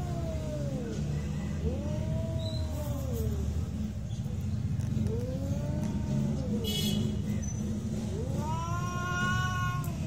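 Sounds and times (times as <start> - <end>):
cat high cry: 0.0 - 3.5, 5.1 - 6.8, 8.1 - 10.0
cats yowling: 0.0 - 3.8, 5.0 - 6.7, 8.0 - 10.0.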